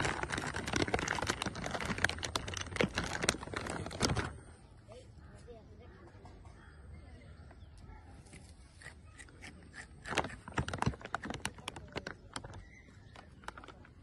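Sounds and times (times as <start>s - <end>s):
plastic snack bag crinkling: 0.0s - 4.5s, 10.0s - 14.0s.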